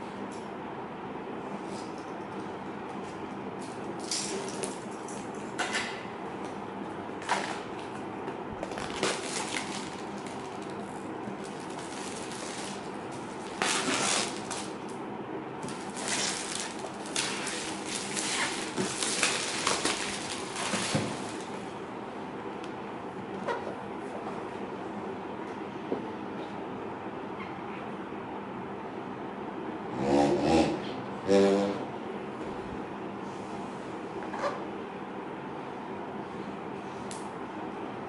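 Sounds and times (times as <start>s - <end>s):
low background hum: 0.0s - 38.0s
plastic wrap tearing and crinkling: 8.6s - 10.8s, 11.4s - 14.8s, 15.6s - 21.5s.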